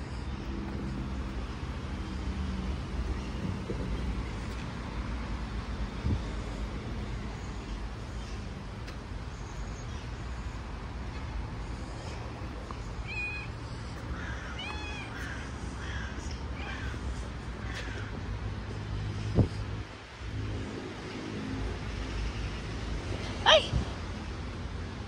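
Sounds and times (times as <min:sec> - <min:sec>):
low urban rumble: 0:00.0 - 0:25.0
cat meowing: 0:13.0 - 0:13.5, 0:14.5 - 0:15.2.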